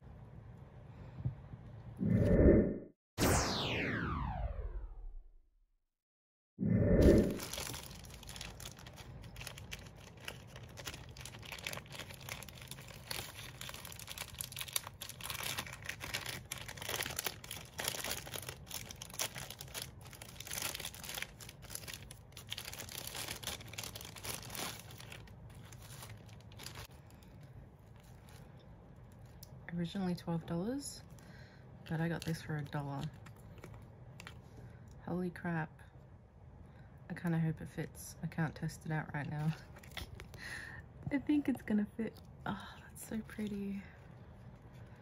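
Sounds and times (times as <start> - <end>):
wrapping material crinkling: 7.3 - 29.6
packaging tearing: 7.4 - 27.2.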